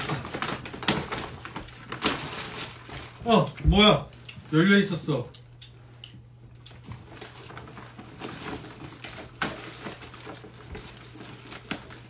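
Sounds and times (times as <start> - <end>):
plastic bag rustling: 0.0 - 3.8, 6.7 - 12.0.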